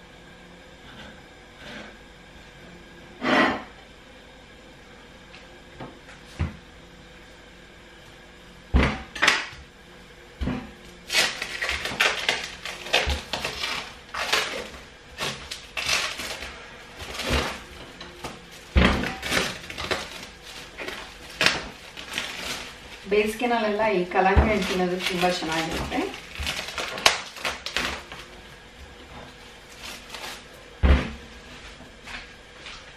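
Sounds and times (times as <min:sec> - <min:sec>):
plastic bag crinkling: 0:11.1 - 0:28.4, 0:29.3 - 0:30.6.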